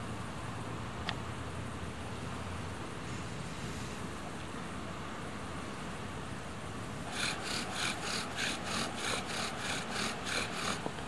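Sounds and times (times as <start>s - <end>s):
bow-drill spindle rasping: 7.0s - 11.0s.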